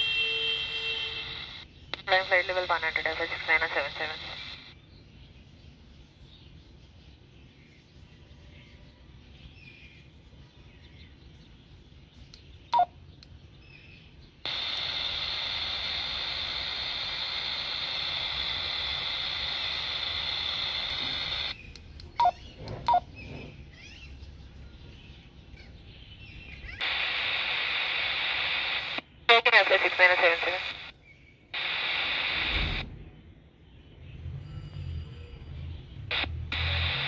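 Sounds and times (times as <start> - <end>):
radio static hiss: 1.0 - 4.8, 14.5 - 21.6, 26.8 - 31.0, 31.6 - 32.9, 36.1 - 37.0
radio beeps: 1.2 - 4.7, 12.8 - 13.0, 14.5 - 21.6, 22.2 - 23.1, 26.8 - 30.9, 31.6 - 32.8, 36.1 - 37.0.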